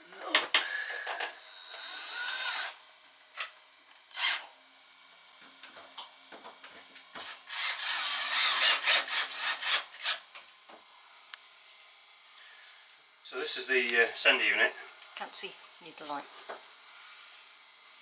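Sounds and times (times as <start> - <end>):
cordless drill whining: 0.6 - 2.8, 4.1 - 4.5, 7.1 - 10.4.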